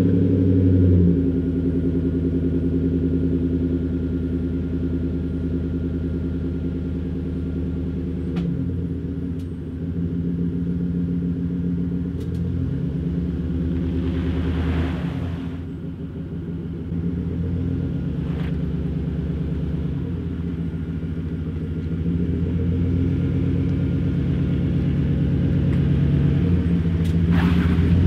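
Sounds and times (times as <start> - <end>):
pickup engine idling: 1.2 - 27.2.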